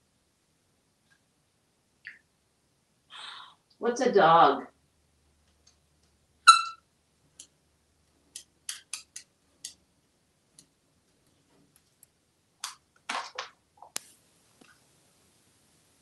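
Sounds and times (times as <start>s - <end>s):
parrot chirp: 6.5s - 6.8s
parrot claws clicking on wood: 8.2s - 9.8s.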